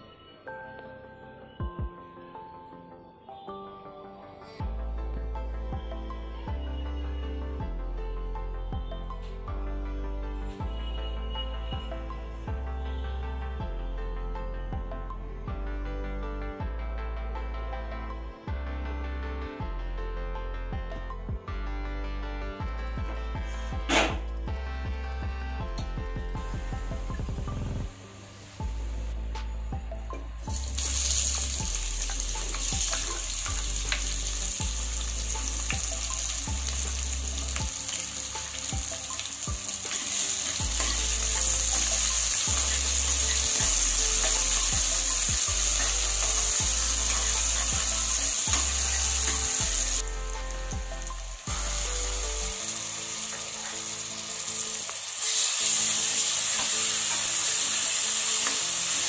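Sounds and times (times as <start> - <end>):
onions sizzling in hot oil: 30.5 - 59.0.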